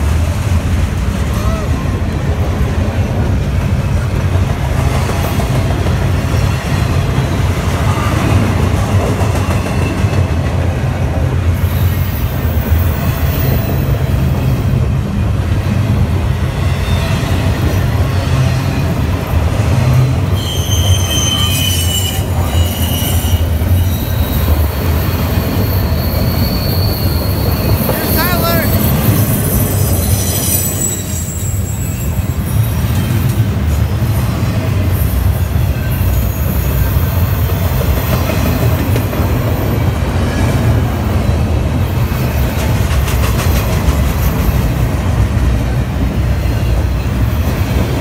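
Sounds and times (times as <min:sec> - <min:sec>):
train wheels rumbling on rails: 0:00.0 - 0:48.0
high-pitched wheel squeals: 0:20.3 - 0:33.3.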